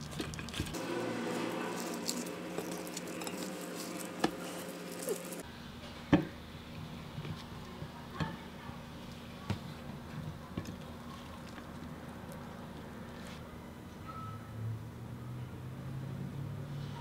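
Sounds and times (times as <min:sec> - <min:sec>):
lettuce leaves rustling: 0:00.0 - 0:05.4.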